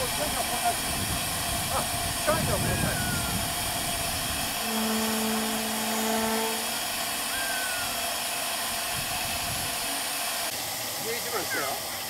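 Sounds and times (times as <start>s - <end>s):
steam hissing: 0.0s - 12.0s
steady low tone: 4.4s - 7.7s.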